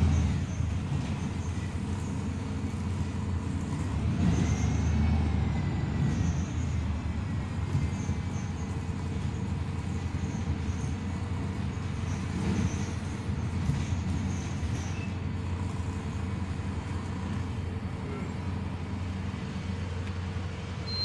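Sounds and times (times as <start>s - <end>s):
bus engine drone: 0.0s - 21.0s
road noise: 0.0s - 21.0s.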